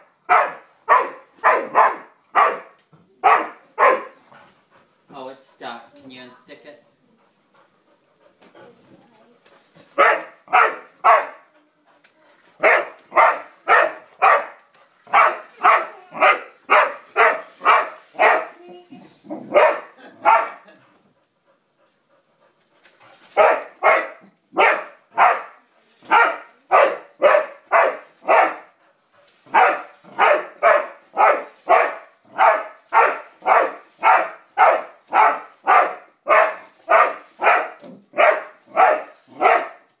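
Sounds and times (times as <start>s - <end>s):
dog barking: 0.3s - 4.2s, 10.0s - 11.4s, 12.6s - 18.6s, 19.3s - 20.7s, 23.4s - 28.7s, 29.5s - 39.9s.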